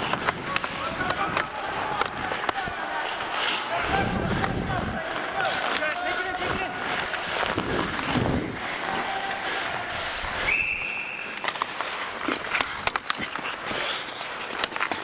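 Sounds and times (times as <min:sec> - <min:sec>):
skates scraping ice: 0:00.0 - 0:15.0
sticks and puck clacking on ice: 0:00.0 - 0:15.0
referee's whistle blast: 0:10.5 - 0:11.3.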